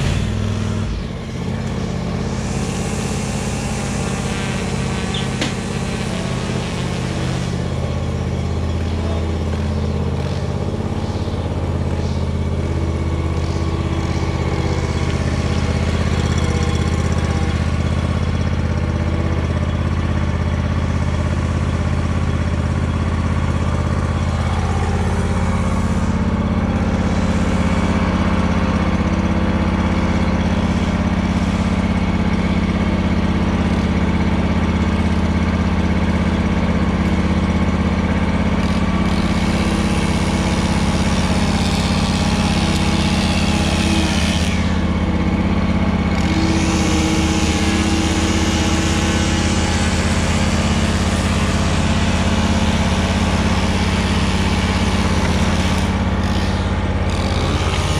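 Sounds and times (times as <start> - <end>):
lawn mower engine running: 0.0 - 57.9.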